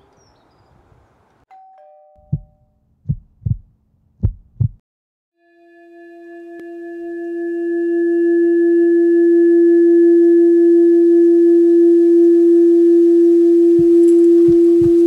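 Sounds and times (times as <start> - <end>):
low thumps: 2.2 - 4.8, 13.7 - 15.0
steady pure drone tone: 5.4 - 15.0.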